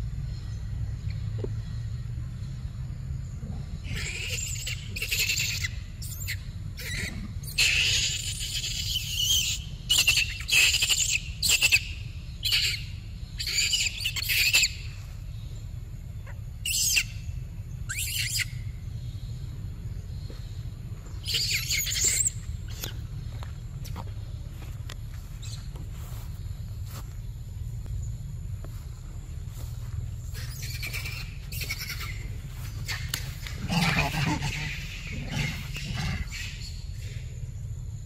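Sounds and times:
steady low rumble: 0.0 - 5.1, 5.7 - 7.6, 11.2 - 38.0
monkeys squealing and screeching: 3.8 - 15.0, 16.6 - 17.3, 17.9 - 18.7, 21.2 - 23.0, 30.3 - 37.2.

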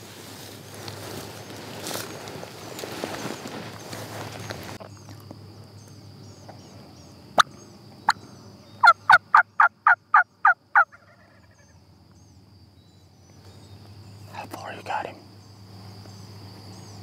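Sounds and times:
wild turkey calling: 7.4 - 11.8.

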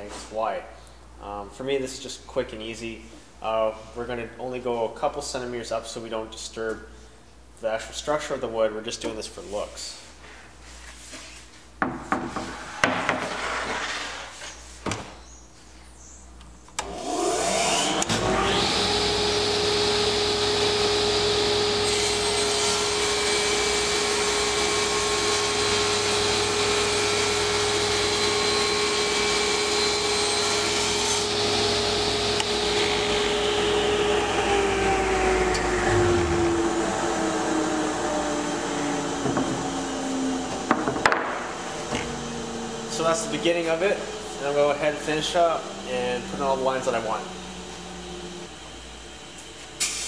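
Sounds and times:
table saw whine: 16.8 - 50.0.

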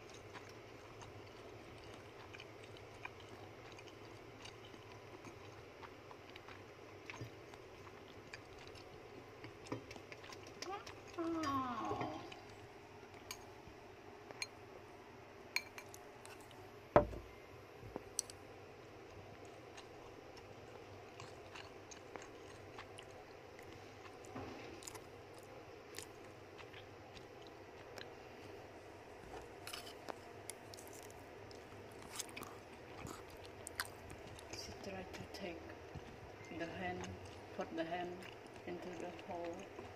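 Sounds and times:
rodent chewing food: 0.0 - 11.5, 19.1 - 39.9
knock: 17.0 - 17.2.

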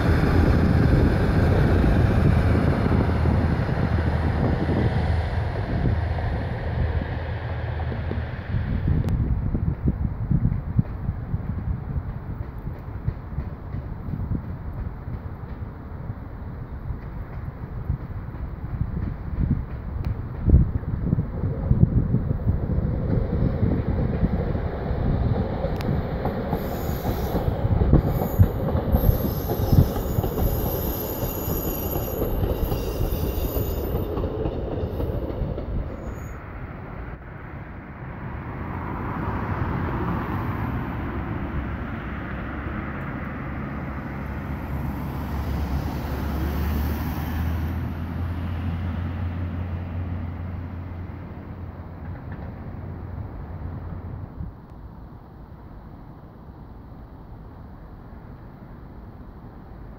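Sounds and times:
train rumble: 0.0 - 59.9
train wheels squealing: 26.3 - 36.5.

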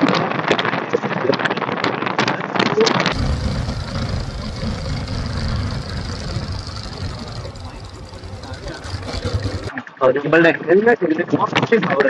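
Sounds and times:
low rumble: 3.1 - 9.7
wind buffeting microphone: 3.1 - 9.7.

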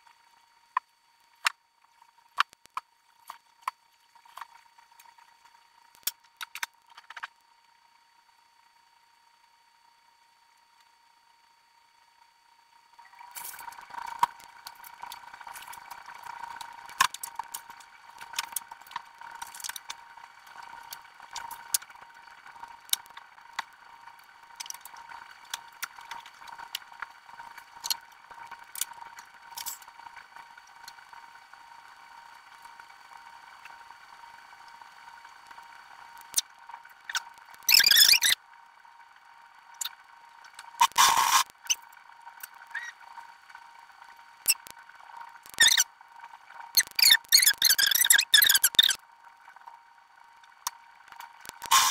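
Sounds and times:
high-pitched hum: 36.1 - 38.4, 45.4 - 45.9, 46.7 - 49.0, 51.4 - 51.9.

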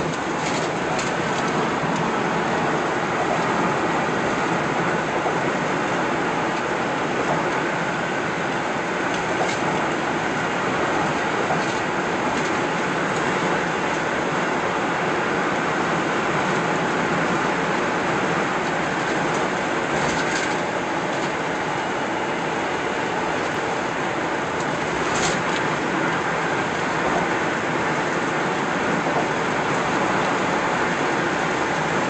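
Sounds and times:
car road and tyre noise: 0.0 - 32.0.

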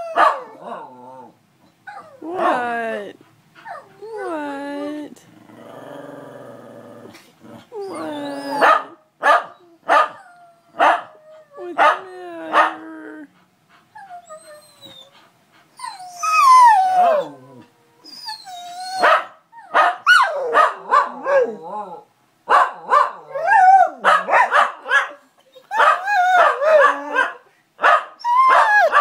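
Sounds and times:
dogs howling and yelping: 0.0 - 2.6, 7.7 - 15.2, 15.8 - 22.1, 22.8 - 24.3, 25.5 - 27.4, 28.2 - 29.0.

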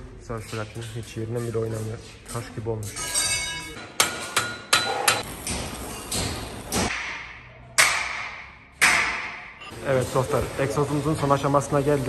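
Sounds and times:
hammer striking metal: 2.8 - 9.7.

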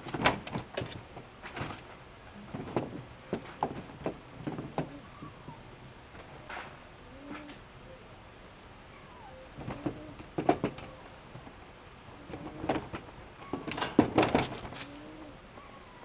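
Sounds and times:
kitten clattering in wire crate: 12.4 - 14.9.

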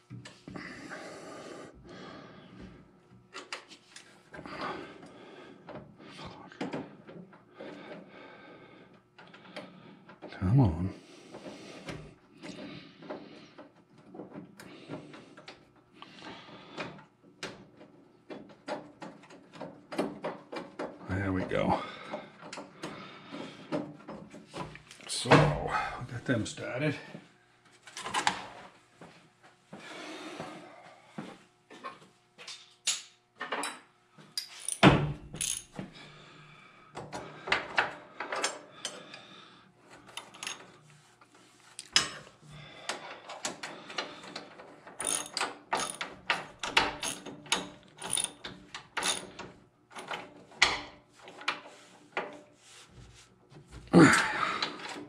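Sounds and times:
metal clinks: 34.4 - 35.7
socket ratchet clicking: 45.0 - 48.4.

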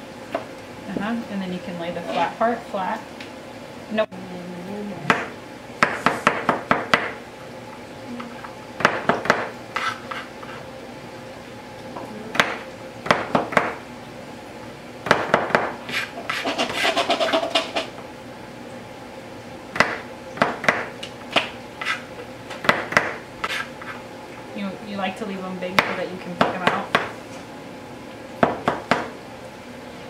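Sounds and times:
knives chopping on plastic boards: 8.8 - 9.5, 19.8 - 21.5, 22.5 - 23.2.

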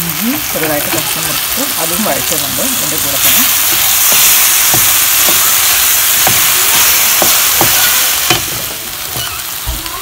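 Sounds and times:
onion sizzling in hot oil: 0.0 - 10.0
spatula scraping a pan: 3.2 - 9.5.

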